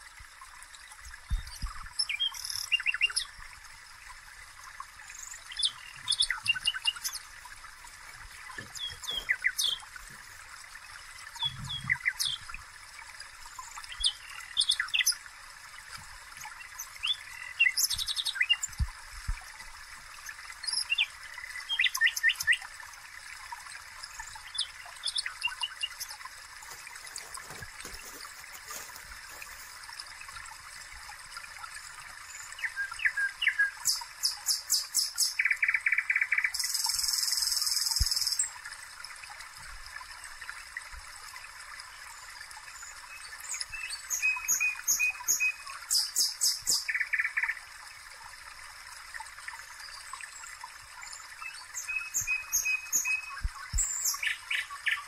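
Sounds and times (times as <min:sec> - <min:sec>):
faint steady hiss: 0:00.0 - 0:55.0
songbird chirping: 0:08.4 - 0:10.2, 0:24.4 - 0:29.9.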